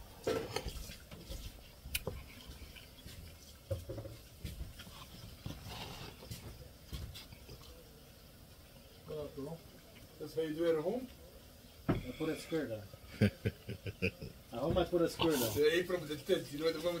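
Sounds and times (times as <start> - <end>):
wet mouth and swallowing noises: 1.9 - 3.1, 15.2 - 15.6
person slurping soup: 15.1 - 15.7.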